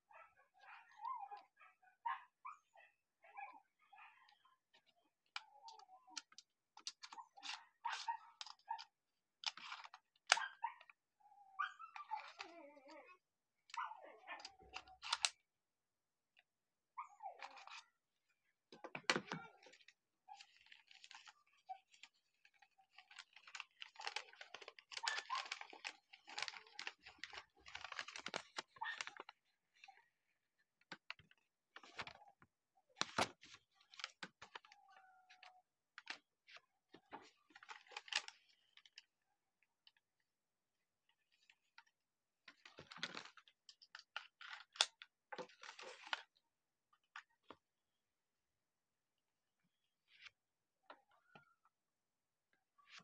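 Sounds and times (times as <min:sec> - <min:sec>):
paper rustling and crinkling: 0:09.4 - 0:10.4, 0:18.9 - 0:30.0, 0:32.9 - 0:39.2, 0:42.5 - 0:46.4.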